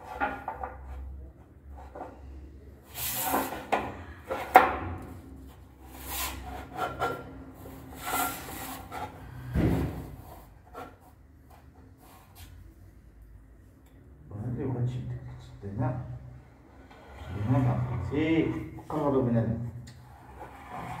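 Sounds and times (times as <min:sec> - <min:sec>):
heavy thump: 0:09.5 - 0:10.2
stone scraping against wall: 0:20.0 - 0:21.0.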